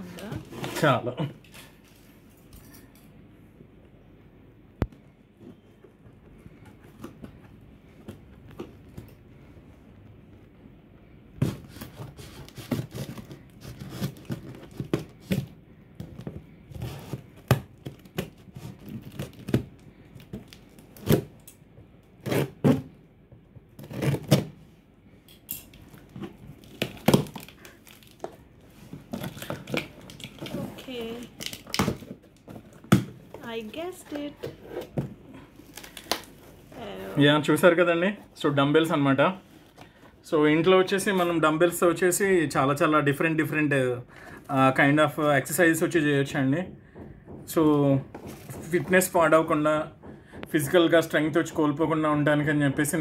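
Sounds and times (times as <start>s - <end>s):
cardboard rustling: 11.4s - 21.3s, 26.0s - 37.3s.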